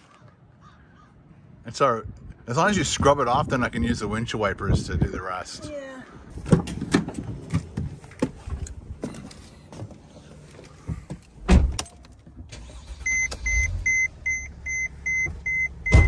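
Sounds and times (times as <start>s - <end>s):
diesel engine starting and idling: 12.2s - 16.0s
electronic warning chime beeping: 13.0s - 16.0s.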